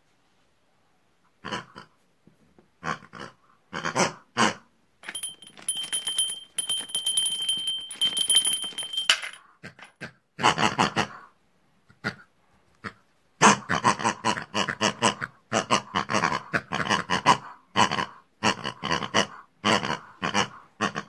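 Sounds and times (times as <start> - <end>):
grunting oink-like voice: 2.8 - 4.2, 13.6 - 21.0
desk bell rung rapidly: 5.0 - 9.4.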